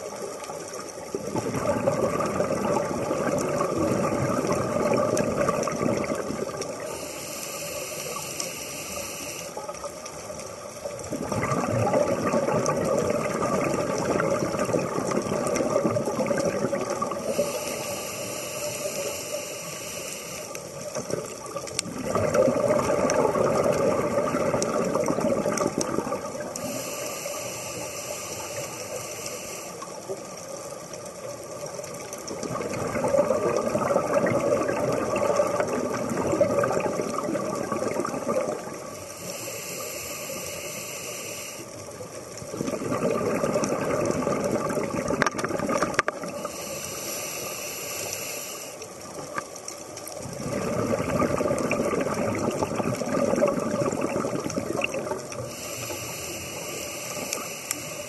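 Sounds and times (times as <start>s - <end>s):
gurgling exhaled bubbles: 0.0s - 7.1s, 9.5s - 18.0s, 20.8s - 27.1s, 30.0s - 40.4s, 41.8s - 47.2s, 49.0s - 58.0s
regulator hissing inhale: 6.8s - 9.7s, 17.2s - 20.8s, 26.6s - 30.2s, 38.9s - 41.9s, 46.2s - 49.1s, 55.4s - 58.0s.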